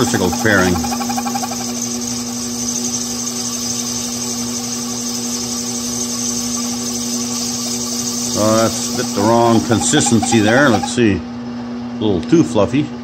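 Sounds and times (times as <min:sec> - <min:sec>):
lathe humming: 0:00.0 - 0:11.3
cutting tool hissing on plastic: 0:03.5 - 0:10.9.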